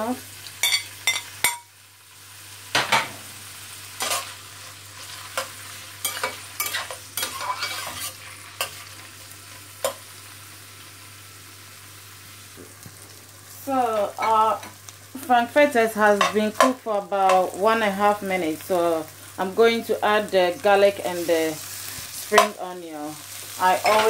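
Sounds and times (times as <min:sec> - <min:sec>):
sausages sizzling in oil: 0:00.0 - 0:24.0
turner clinking and scraping pan: 0:05.3 - 0:08.9.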